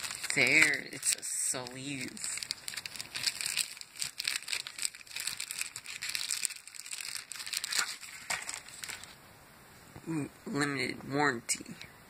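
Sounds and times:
plastic sleeve crinkling: 0:00.0 - 0:09.2.

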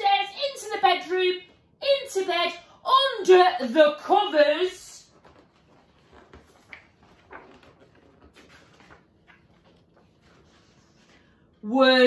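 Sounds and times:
paper pages turning: 0:05.0 - 0:11.4.

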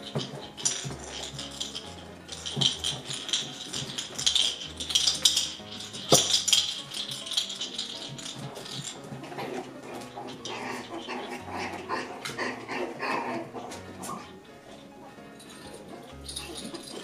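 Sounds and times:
shaker-like percussion: 0:00.0 - 0:14.4, 0:15.2 - 0:17.0.

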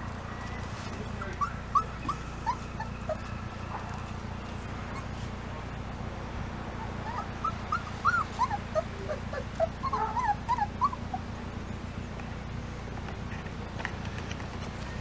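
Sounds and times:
puppies whimpering: 0:00.0 - 0:05.4, 0:06.7 - 0:11.4.

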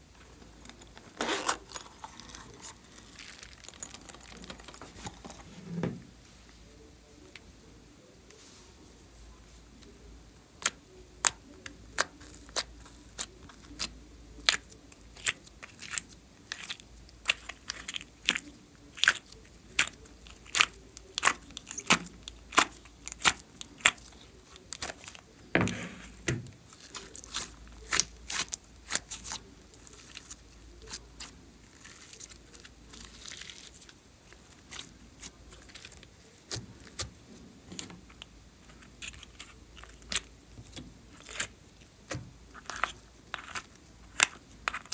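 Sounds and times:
slime squelching: 0:00.8 - 0:05.6, 0:10.6 - 0:44.9.

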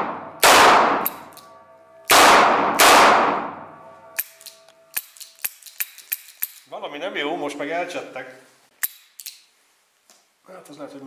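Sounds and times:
revolver shots echoing: 0:00.0 - 0:04.2.

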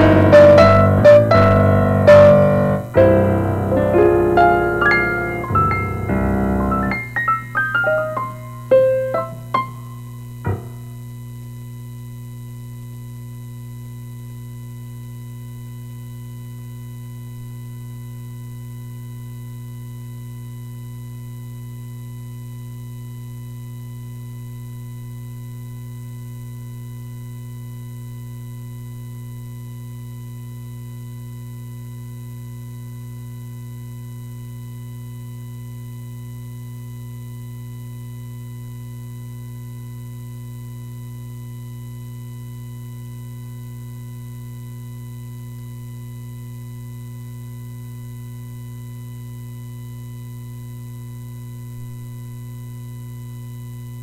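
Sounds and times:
electrical mains hum: 0:00.0 - 0:54.0.

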